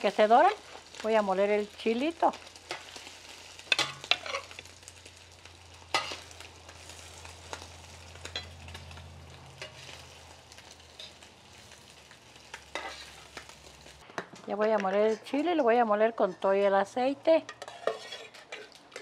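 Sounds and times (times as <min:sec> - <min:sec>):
meat sizzling in hot oil: 0:00.0 - 0:14.0
metal spatula scraping pan: 0:02.6 - 0:04.6, 0:05.9 - 0:06.3, 0:12.7 - 0:13.4, 0:17.4 - 0:19.0.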